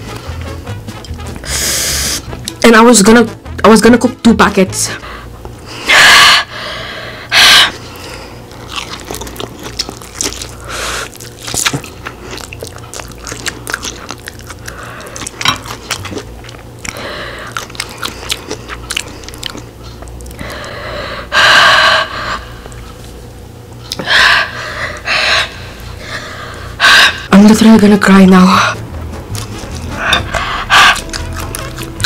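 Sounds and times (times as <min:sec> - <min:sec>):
chewing with wet mouth clicks: 0:08.0 - 0:20.6, 0:29.4 - 0:32.0.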